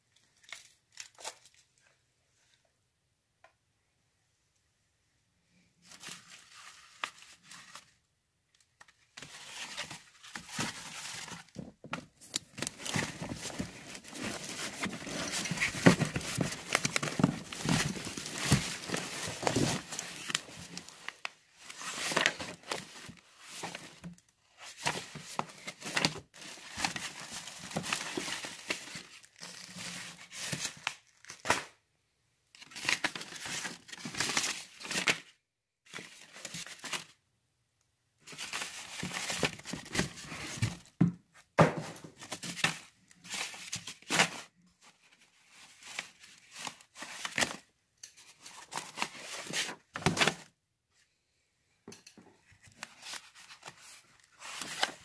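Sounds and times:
comic books being shuffled: 8.7s - 31.7s, 32.6s - 35.3s, 38.2s - 50.6s, 52.4s - 55.0s.

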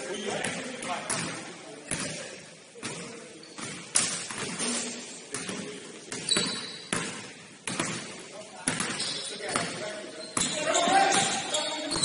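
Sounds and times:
basketball bouncing on gym floor: 0.4s - 2.2s, 2.8s - 4.6s, 5.3s - 9.8s.

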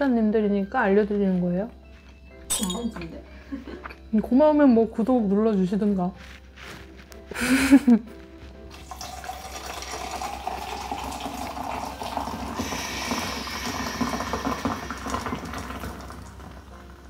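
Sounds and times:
fizzy drink pouring into glass: 8.7s - 16.8s.

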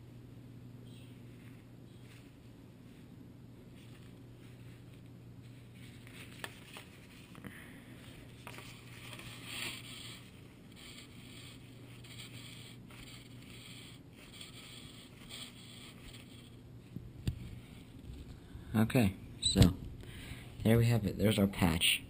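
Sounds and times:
steady low hum: 0.0s - 22.0s
glove rubbing on surface: 0.9s - 7.4s, 8.0s - 16.6s.

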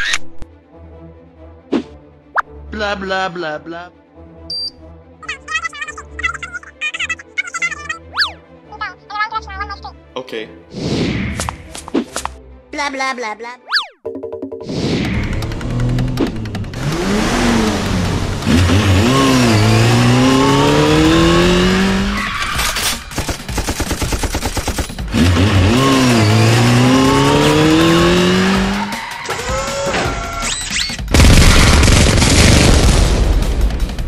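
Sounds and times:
car engine revving: 15.0s - 22.3s, 25.1s - 29.2s
loud explosion blast: 31.1s - 34.0s.

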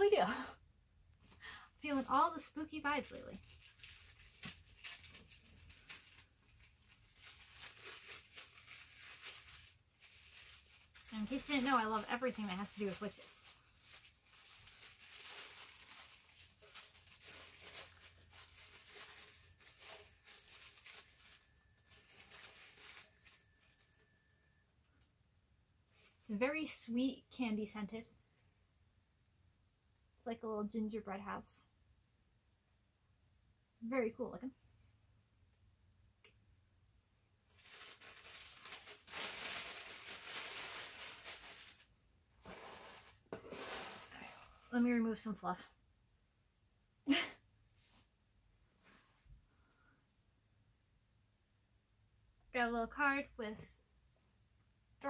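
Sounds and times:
wrapping crinkling and tearing: 1.2s - 24.5s, 25.9s - 26.3s, 37.4s - 44.7s.

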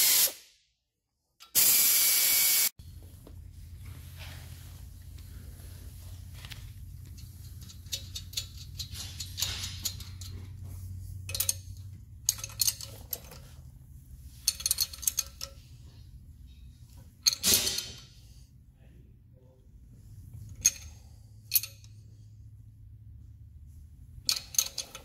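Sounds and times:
low steady hum: 2.8s - 25.0s
wrench clicking and clinking: 7.0s - 10.6s, 11.2s - 13.6s, 14.4s - 15.7s, 17.2s - 18.1s, 20.5s - 22.1s, 24.2s - 25.0s.

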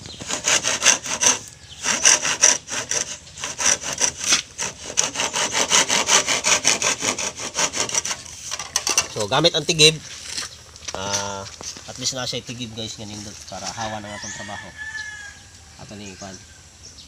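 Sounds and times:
hand saw cutting bamboo: 0.1s - 9.3s.

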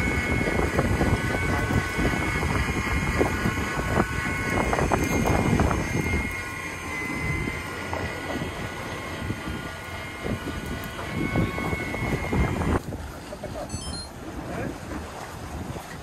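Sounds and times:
wind buffeting microphone: 0.0s - 6.5s, 8.2s - 13.2s
electric reel motor whining: 0.0s - 12.8s.

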